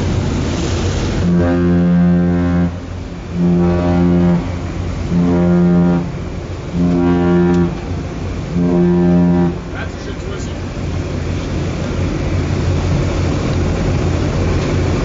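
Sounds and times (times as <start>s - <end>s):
sea rumble: 0.0s - 15.0s
wind: 0.0s - 15.0s
ship horn short blasts: 1.1s - 10.6s.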